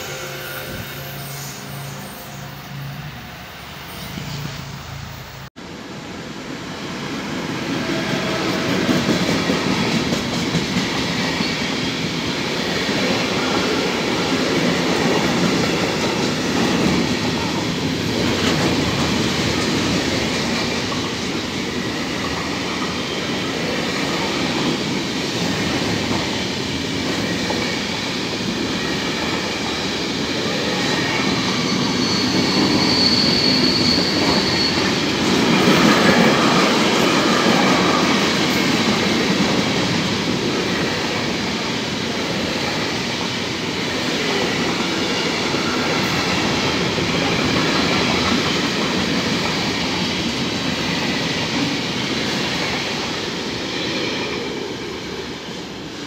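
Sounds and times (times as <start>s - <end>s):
high-pitched wheel squeal: 0.0s - 5.3s, 30.8s - 35.2s
freight train rolling past: 0.0s - 56.0s.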